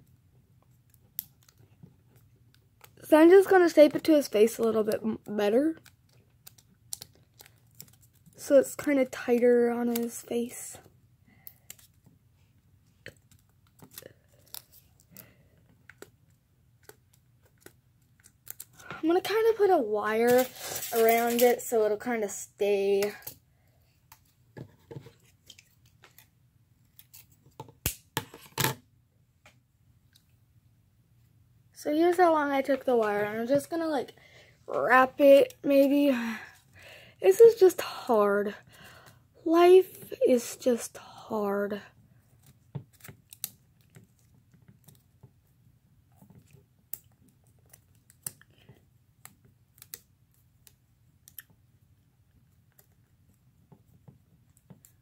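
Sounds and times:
aluminium foil crinkling: 5.5 - 10.2, 20.1 - 21.7
wire clicking and snipping: 26.9 - 28.0, 49.2 - 51.5.

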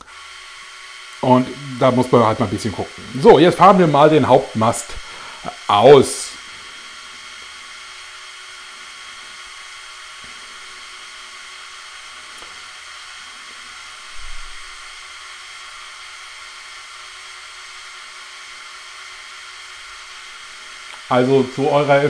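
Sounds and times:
electric motors whining: 0.0 - 22.0
short low thump: 14.1 - 14.6.

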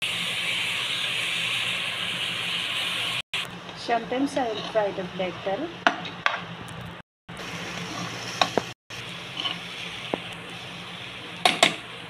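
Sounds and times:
food frying in oil: 0.0 - 12.0.

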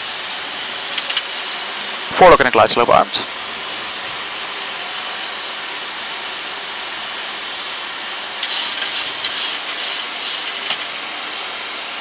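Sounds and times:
airflow and jet engines rushing: 8.0 - 12.0.

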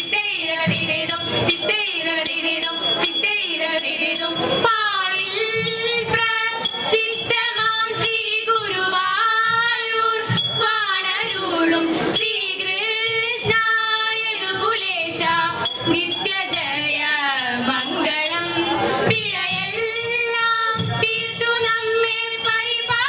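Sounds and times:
women singing folk melody: 0.0 - 23.0.

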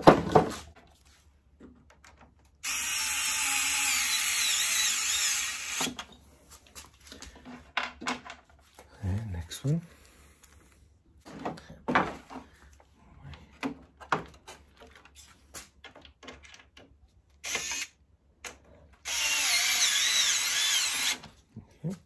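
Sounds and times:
tool handling clicks and knocks: 1.6 - 2.6, 7.1 - 8.9, 13.3 - 17.0
cordless drill driving screws: 2.6 - 6.1, 17.4 - 18.0, 19.0 - 21.3.

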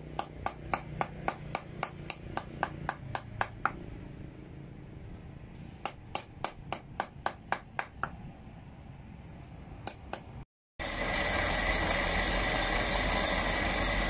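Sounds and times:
hammer striking steel rod: 0.0 - 4.2, 5.8 - 8.2.

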